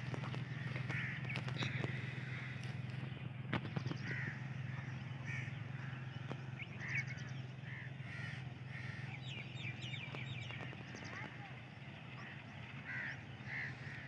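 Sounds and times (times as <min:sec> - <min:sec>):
steady low hum: 0:00.0 - 0:14.0
crows cawing: 0:00.1 - 0:03.1, 0:03.9 - 0:09.4, 0:12.2 - 0:14.0
bird chirping: 0:08.8 - 0:13.9.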